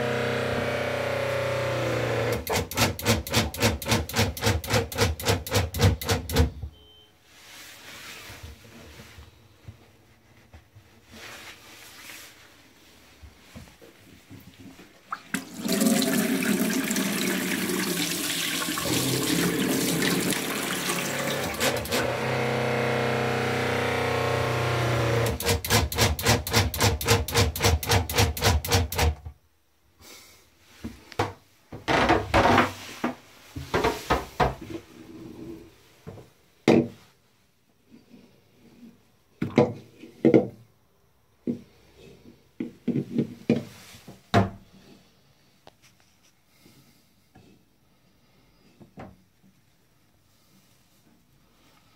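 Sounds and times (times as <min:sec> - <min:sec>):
electric water pump humming: 0:00.0 - 0:04.4, 0:15.4 - 0:27.1
tap water running: 0:15.1 - 0:22.1.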